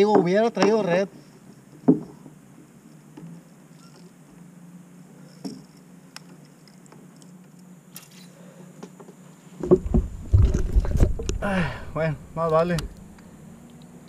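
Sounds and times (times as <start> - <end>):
heavy thumps against kayak: 9.6 - 11.5.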